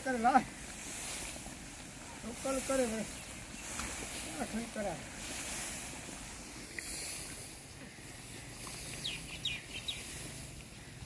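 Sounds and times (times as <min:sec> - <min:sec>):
steady hiss: 0:00.0 - 0:11.0
quick high bird chirps: 0:09.0 - 0:10.1.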